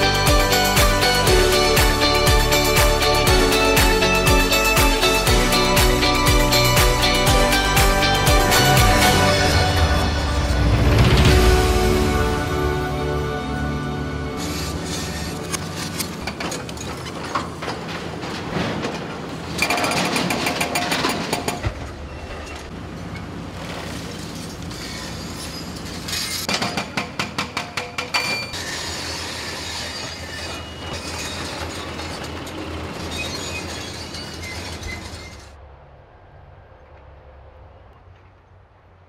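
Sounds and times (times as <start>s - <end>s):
excavator diesel engine running: 0.0s - 26.4s, 28.6s - 35.5s
crusher grinding and cracking concrete: 14.4s - 21.9s.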